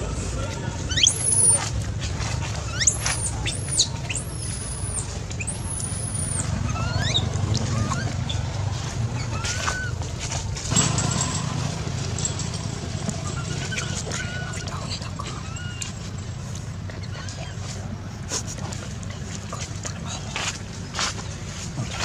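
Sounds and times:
high-pitched animal squeaks: 0.8 - 1.7, 2.5 - 8.5, 9.1 - 10.0, 13.2 - 16.3.

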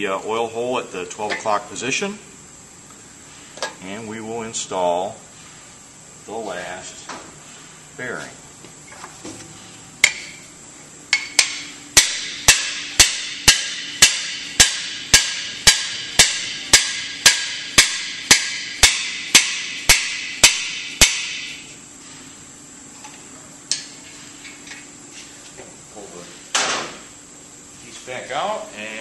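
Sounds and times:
hammer striking metal tool: 11.1 - 21.6.

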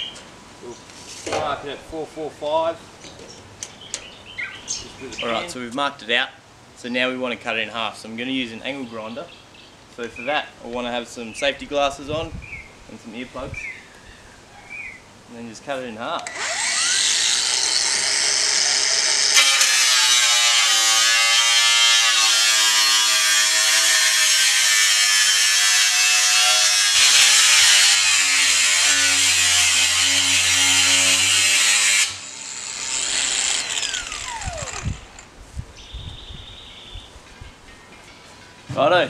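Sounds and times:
angle grinder cutting metal: 16.2 - 35.3
grinder disc spinning down: 16.2 - 35.3.

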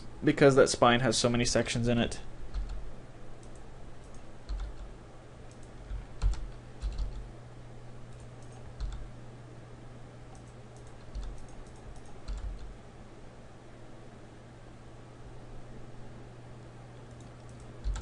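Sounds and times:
steady low hum: 0.0 - 18.0
keyboard keys clicking: 2.5 - 2.8, 3.4 - 4.9, 5.5 - 7.3, 8.1 - 9.0, 10.3 - 12.7, 17.1 - 18.0.

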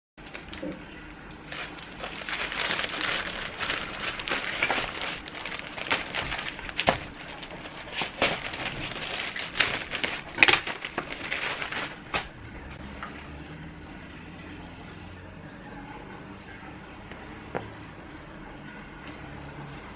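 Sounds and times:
plastic bag crinkling and rustling: 0.2 - 12.8
scissors cutting plastic: 1.5 - 12.3.

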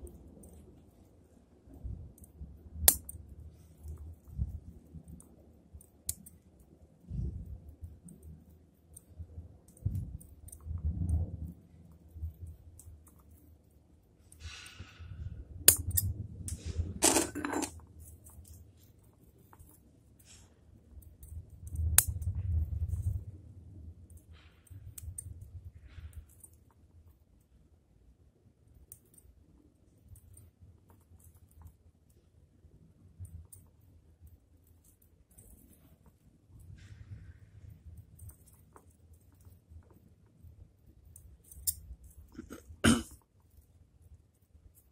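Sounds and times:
sharp metallic clicks: 2.2 - 3.2
hands and tools handling noise: 15.7 - 23.3.

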